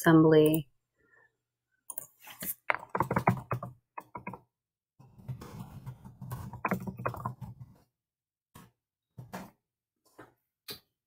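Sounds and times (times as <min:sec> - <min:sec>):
typing on computer keyboard: 0:02.7 - 0:04.4, 0:06.3 - 0:07.5.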